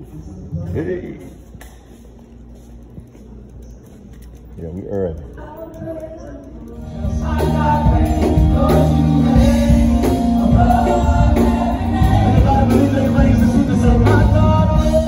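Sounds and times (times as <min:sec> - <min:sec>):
gospel church band: 0:05.3 - 0:15.0
people singing: 0:05.4 - 0:15.0.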